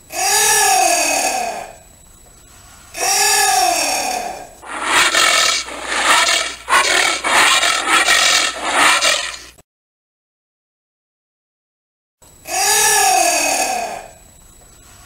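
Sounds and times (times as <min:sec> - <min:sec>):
anteater calls: 0:04.6 - 0:09.5.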